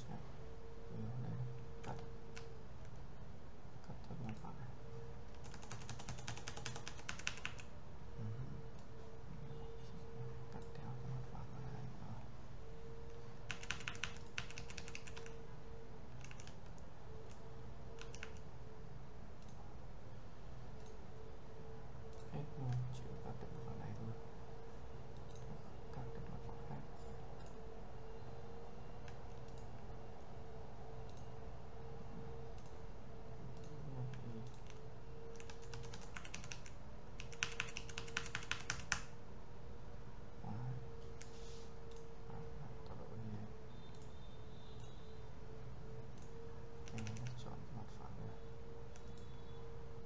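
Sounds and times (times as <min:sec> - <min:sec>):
low steady hum: 0:00.0 - 0:50.0
keyboard typing: 0:01.0 - 0:03.1, 0:03.8 - 0:09.6, 0:13.1 - 0:15.5, 0:16.1 - 0:18.5, 0:25.1 - 0:26.6, 0:29.0 - 0:29.8, 0:33.5 - 0:39.2, 0:41.0 - 0:45.1, 0:46.0 - 0:47.6, 0:48.9 - 0:49.5.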